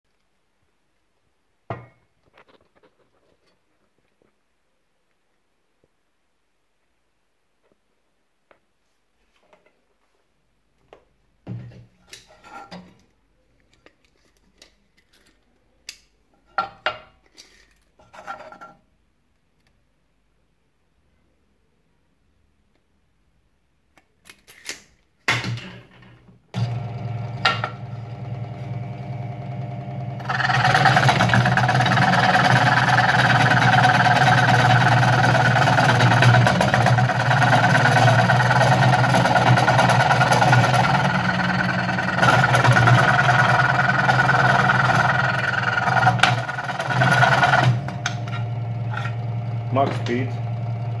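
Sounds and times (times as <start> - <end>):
scroll saw cutting wood: 29.9 - 50.4.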